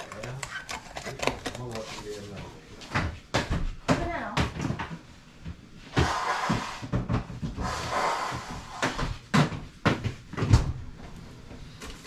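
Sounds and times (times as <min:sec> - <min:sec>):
knocks and bumps in kitchen: 0:02.8 - 0:11.2.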